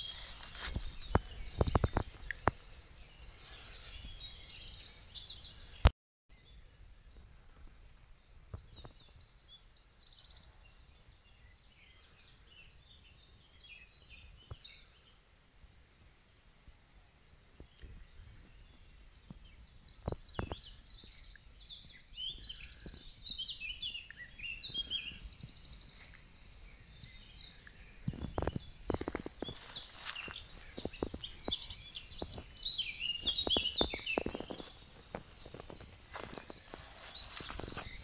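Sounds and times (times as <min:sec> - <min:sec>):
songbirds singing: 0:00.0 - 0:16.0, 0:16.6 - 0:38.0
clicks and rustles: 0:28.1 - 0:32.5.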